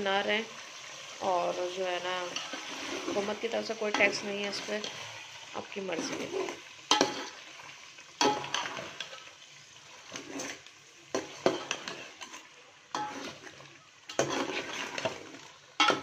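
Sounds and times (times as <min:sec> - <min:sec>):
low sizzle of simmering sauce: 0:00.0 - 0:16.0
metal spoon scraping a metal pot: 0:02.2 - 0:07.4, 0:09.9 - 0:16.0.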